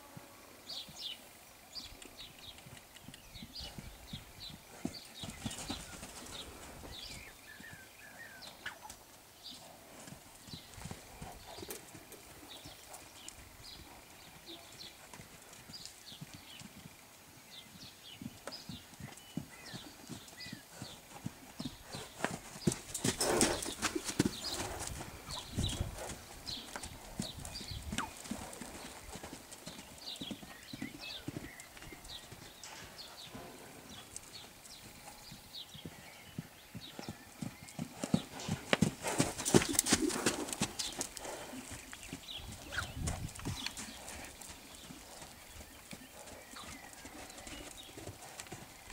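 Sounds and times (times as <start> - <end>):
hoofbeats on sand: 3.6 - 7.8, 17.5 - 48.9.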